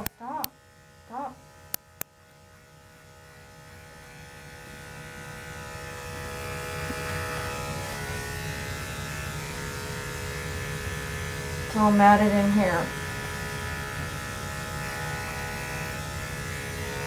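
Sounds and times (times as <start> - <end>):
electric clippers buzzing: 0.0 - 17.0.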